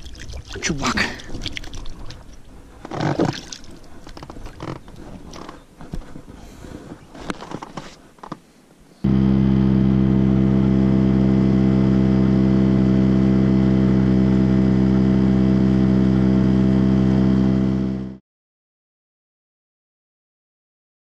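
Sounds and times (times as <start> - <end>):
water splashing against boat: 0.0 - 7.7
outboard motor running: 9.0 - 18.2.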